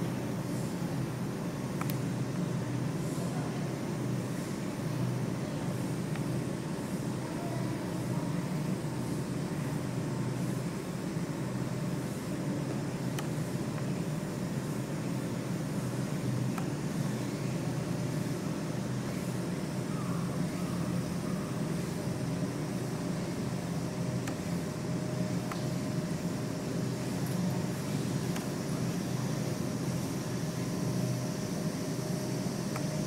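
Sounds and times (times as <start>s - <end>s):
faint ticks: 25.4s - 25.7s.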